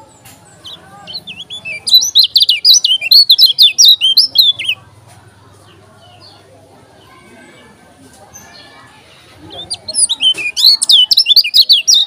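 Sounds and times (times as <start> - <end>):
bird chirping rapidly: 0.0 - 4.8, 9.5 - 12.0.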